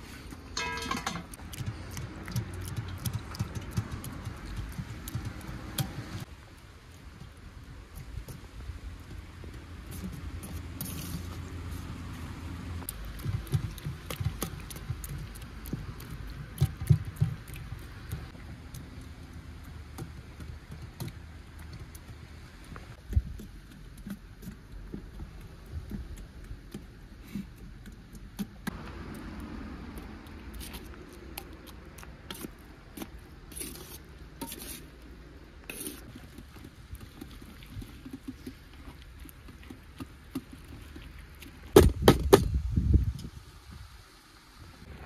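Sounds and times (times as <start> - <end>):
objects clinking and knocking: 0.5 - 1.5.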